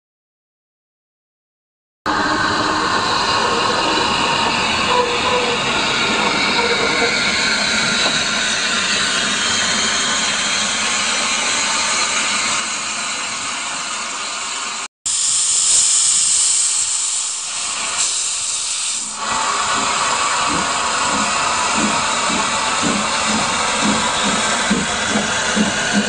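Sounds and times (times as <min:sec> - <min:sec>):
steam locomotive hissing: 0:02.1 - 0:26.0.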